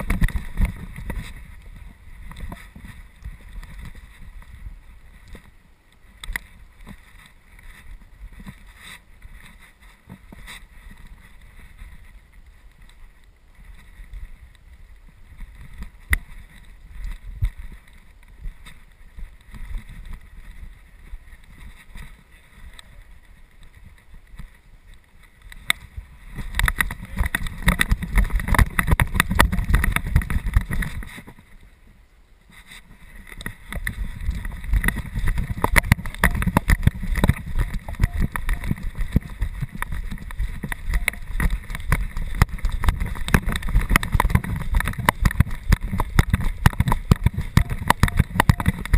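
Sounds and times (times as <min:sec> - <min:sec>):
rapid crackling knocks: 0:25.6 - 0:31.4, 0:33.3 - 0:48.9
camera mount rubbing and knocking: 0:33.3 - 0:48.9.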